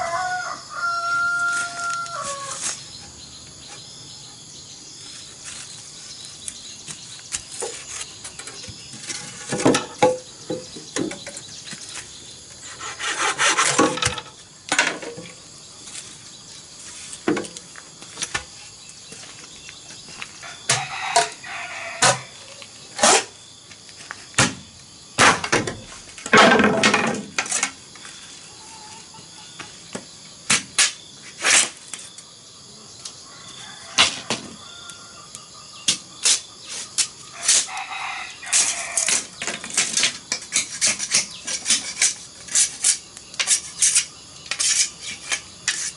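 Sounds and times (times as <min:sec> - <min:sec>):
insect chirring: 0:00.0 - 0:26.4, 0:27.2 - 0:45.9
bamboo scraping and rubbing: 0:01.1 - 0:04.0, 0:05.0 - 0:23.4, 0:25.2 - 0:29.1, 0:30.5 - 0:32.1, 0:35.9 - 0:45.9
bamboo poles knocking: 0:07.0 - 0:11.4, 0:25.2 - 0:27.8.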